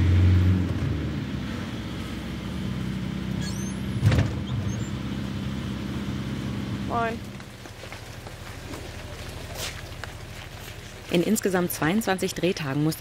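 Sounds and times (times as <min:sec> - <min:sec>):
van engine and road noise: 0:00.0 - 0:13.0
short high squeak: 0:03.4 - 0:05.0.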